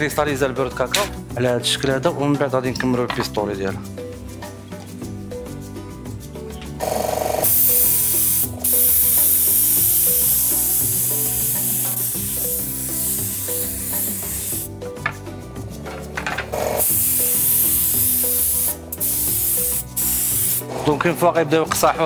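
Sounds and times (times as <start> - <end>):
spray gun hissing: 6.8 - 14.7, 16.6 - 20.7.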